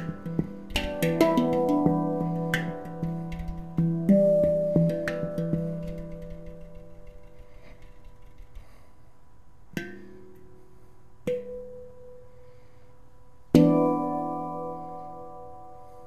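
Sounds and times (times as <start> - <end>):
handpan strikes ringing: 0.0 - 8.5, 13.6 - 16.0.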